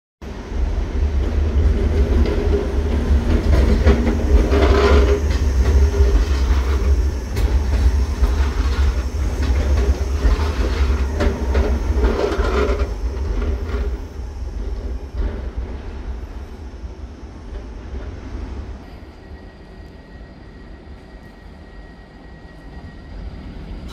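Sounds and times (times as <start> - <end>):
tram wheels rumbling on rails: 0.2 - 23.9
wheels clattering over rail joints: 0.9 - 16.2.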